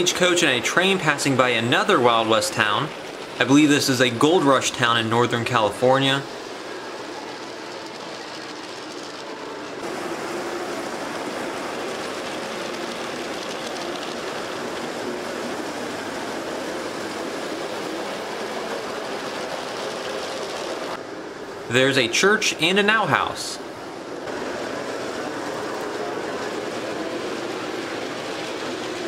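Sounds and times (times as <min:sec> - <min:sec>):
model train wheels rattling: 0:00.0 - 0:21.0.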